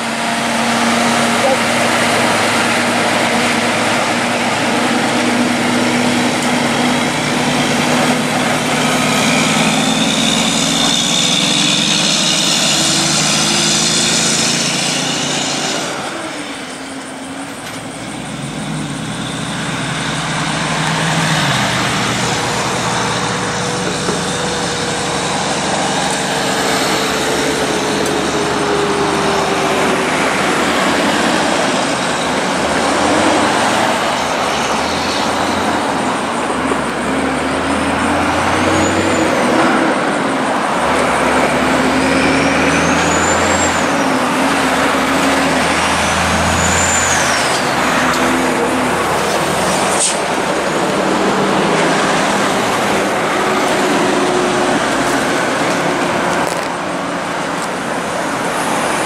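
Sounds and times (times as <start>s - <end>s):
diesel trucks passing: 0.0s - 59.0s.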